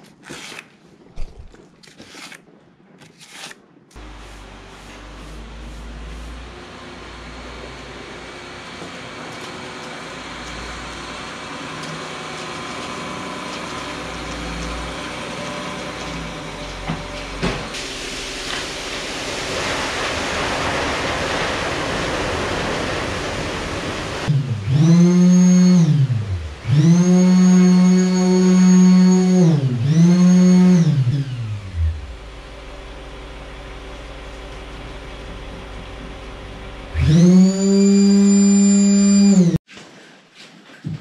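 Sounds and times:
diesel truck engine running: 4.0 - 19.6, 31.9 - 37.2
power tool spinning up: 24.2 - 32.2, 36.9 - 39.6.

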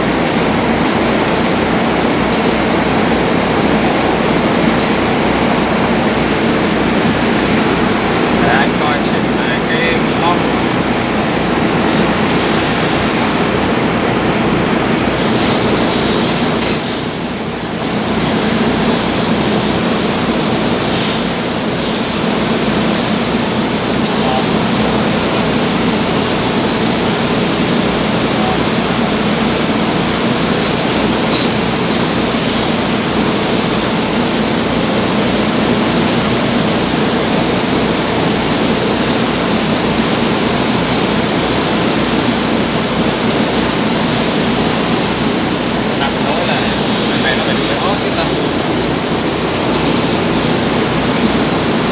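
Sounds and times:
machinery humming: 0.0 - 51.9.

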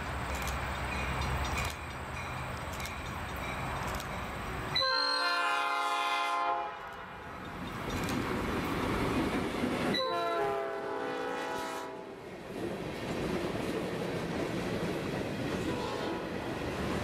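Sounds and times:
train rumbling on rails: 0.0 - 17.0
locomotive air horn chord: 4.8 - 7.2, 10.0 - 12.2, 15.7 - 16.2.

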